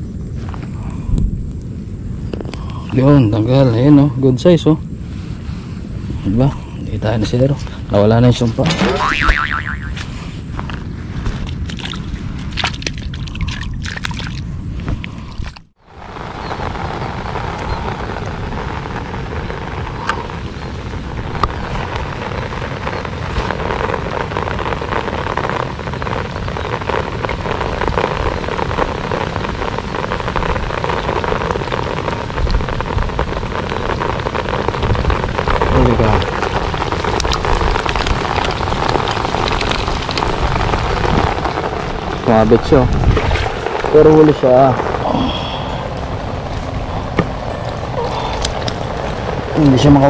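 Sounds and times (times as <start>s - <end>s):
rain falling on water: 15.8s - 50.0s.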